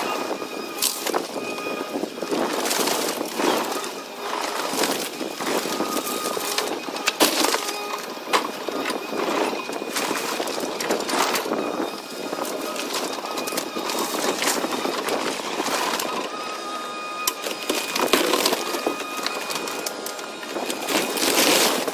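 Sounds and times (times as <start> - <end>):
excavator engine and hydraulics: 0.0 - 21.9
lumber cracking and splintering: 0.8 - 16.1.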